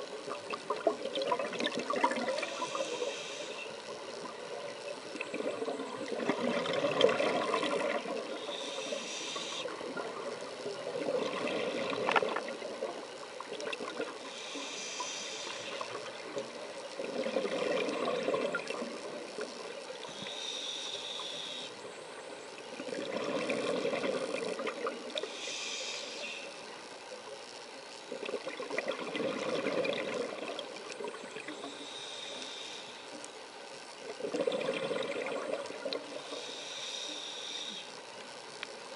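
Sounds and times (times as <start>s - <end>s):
bubbling on exhale: 0.9s - 3.1s, 5.2s - 10.3s, 10.9s - 13.0s, 17.0s - 19.2s, 22.8s - 25.2s, 28.2s - 31.7s, 34.1s - 36.4s
regulator hiss on inhale: 2.3s - 5.8s, 7.7s - 10.8s, 14.0s - 17.5s, 19.1s - 22.6s, 23.5s - 27.7s, 31.4s - 34.0s, 34.6s - 38.9s.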